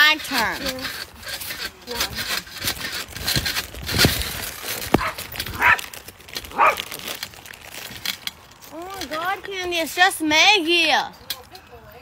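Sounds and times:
dog barking: 5.0 - 5.8, 6.5 - 6.8.

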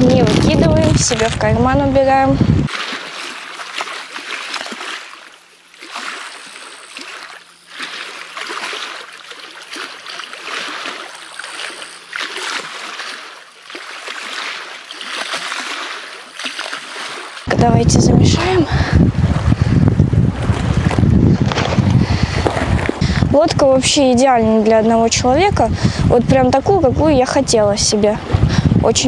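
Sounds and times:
small waves lapping against boat: 0.0 - 17.6.

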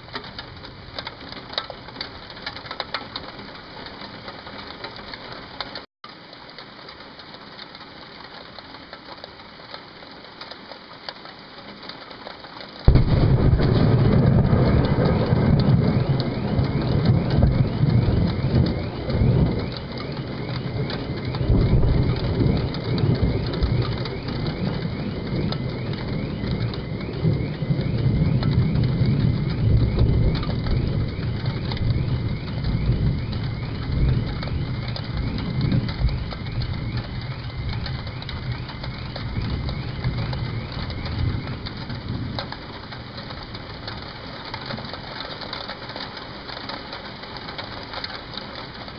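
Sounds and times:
thunder crash and rumble: 12.9 - 43.9
car alarm chirping: 13.0 - 42.8.

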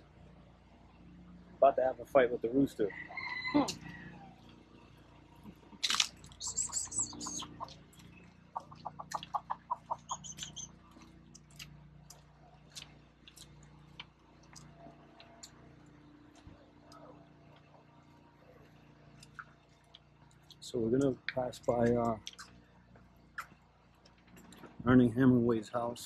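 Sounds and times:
low steady hum: 0.0 - 26.0
birds chirping: 3.2 - 24.8
quick evenly spaced bird notes: 6.2 - 11.4.

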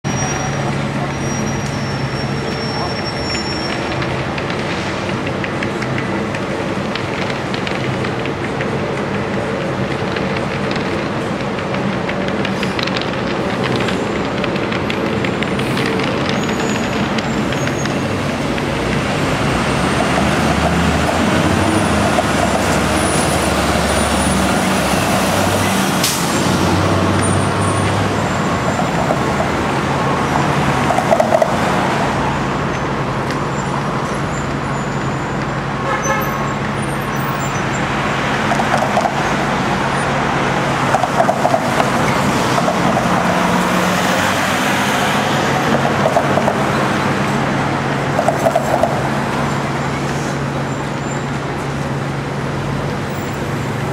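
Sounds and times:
cars and buses passing: 0.0 - 53.9.

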